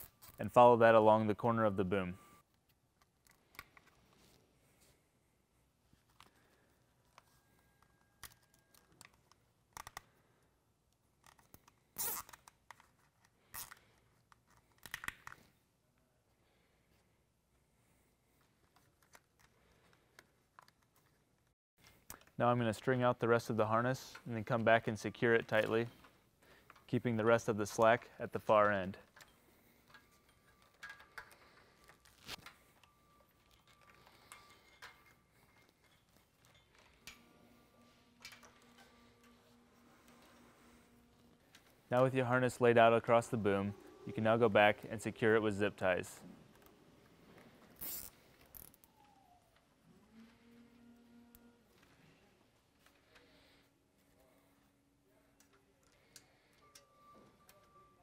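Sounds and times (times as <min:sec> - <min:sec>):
plastic tubing rustling and scraping: 0:25.4 - 0:48.7.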